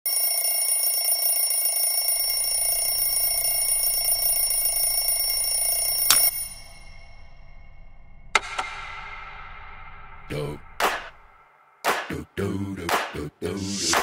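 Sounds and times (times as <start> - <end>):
alarm clock bell ringing: 0.0 - 7.5
alarm clock click: 2.3 - 6.6.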